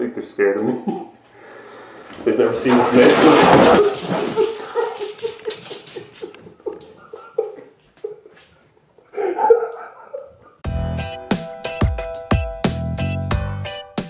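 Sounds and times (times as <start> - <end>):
person laughing: 4.2 - 10.6.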